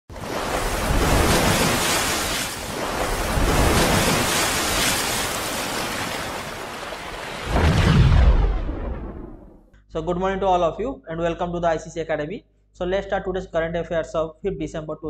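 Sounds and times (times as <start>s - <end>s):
water splash whoosh: 0.1s - 9.7s.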